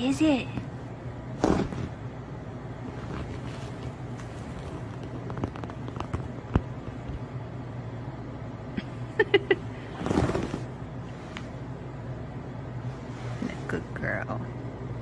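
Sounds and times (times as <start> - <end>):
steady low hum: 0.0 - 15.0
rustle of bedding: 2.8 - 5.7, 9.9 - 11.7, 12.8 - 13.9.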